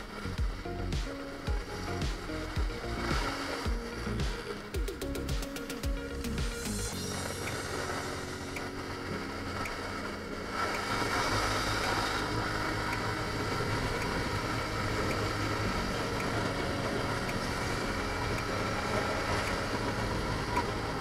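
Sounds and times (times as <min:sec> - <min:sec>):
motorcycle engine cruising: 0:10.7 - 0:21.0.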